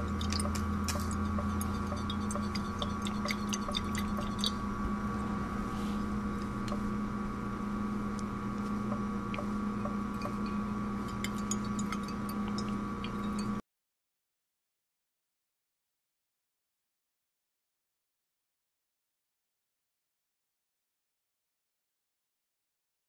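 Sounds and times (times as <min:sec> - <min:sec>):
glass flask ticks and clinks: 0:00.0 - 0:04.6, 0:09.3 - 0:13.6
low room hum: 0:00.0 - 0:13.6.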